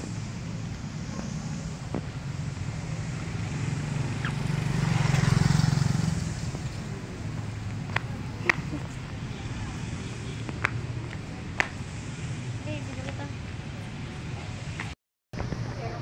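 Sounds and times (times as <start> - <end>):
motor vehicle passing close: 0.0 - 12.8
traffic engine rumble: 0.0 - 16.0.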